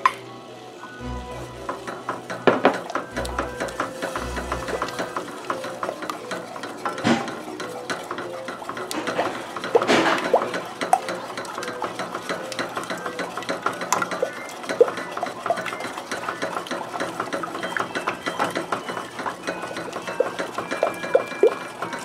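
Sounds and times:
wooden spoon knocking in steel pot: 0:01.4 - 0:22.0.

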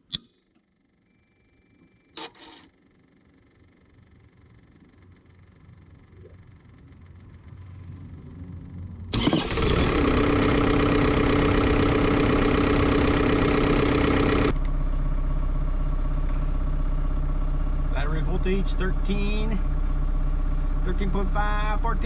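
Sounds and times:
engine idling: 0:02.2 - 0:22.0
excavator diesel engine starting: 0:08.9 - 0:22.0.

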